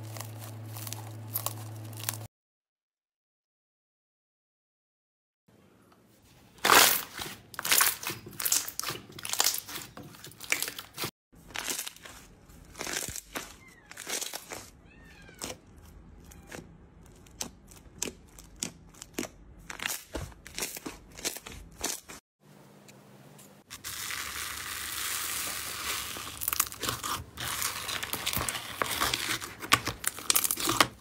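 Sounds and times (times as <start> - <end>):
slime crackling and popping: 0.0 - 2.3, 6.6 - 14.7, 23.7 - 31.0.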